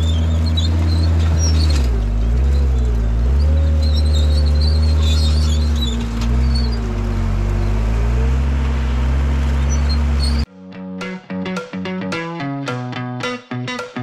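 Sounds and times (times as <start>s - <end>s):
diesel engine under load: 0.0s - 10.5s.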